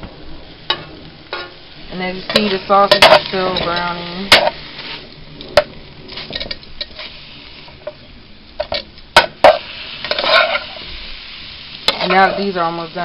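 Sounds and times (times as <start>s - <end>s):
sausages sizzling in a frying pan: 0.0s - 13.0s
metal spatula scraping a pan: 0.7s - 7.2s, 8.6s - 11.0s, 11.8s - 12.6s.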